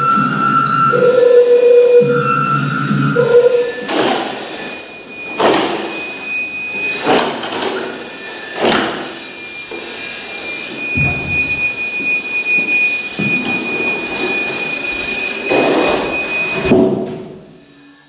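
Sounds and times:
electronic steady tones: 9.2s - 16.7s.

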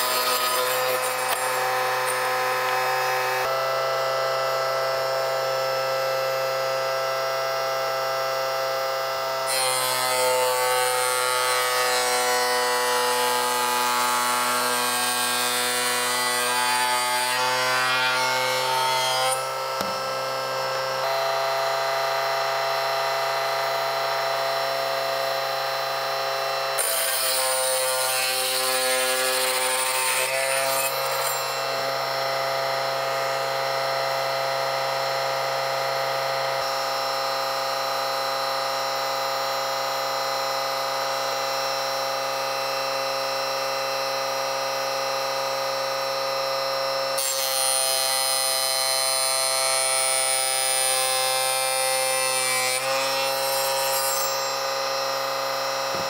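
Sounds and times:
saw blade cutting sheet material: 0.0s - 3.6s, 9.5s - 21.2s, 26.8s - 31.9s, 48.7s - 54.9s
table saw running: 0.0s - 37.3s, 47.2s - 56.0s.

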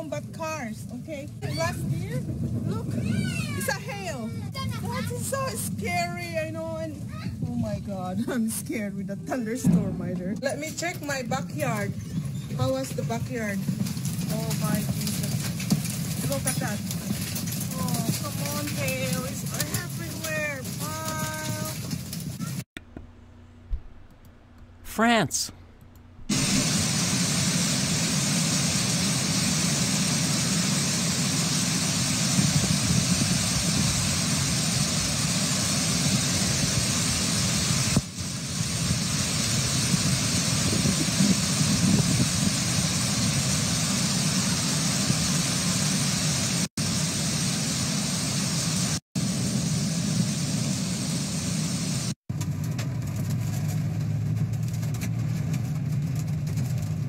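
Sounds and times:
heavy hail falling: 0.2s - 8.3s, 10.4s - 22.6s, 26.3s - 46.7s
car engine running: 3.9s - 6.8s.

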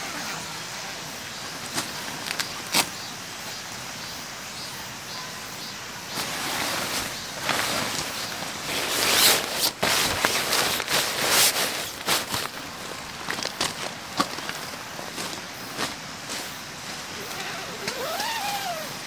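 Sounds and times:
tent fabric rustling: 6.1s - 19.0s
footsteps on gravel: 6.2s - 18.0s.

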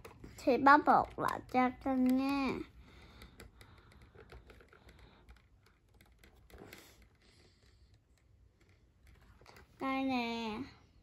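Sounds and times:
plastic toy pieces clicking: 0.9s - 7.2s.

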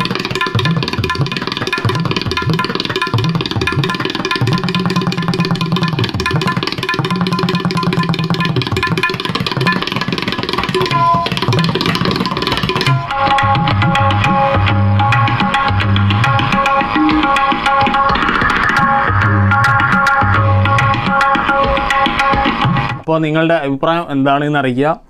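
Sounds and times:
tabla strokes: 0.0s - 23.1s
melodic instrument notes: 10.7s - 22.3s.

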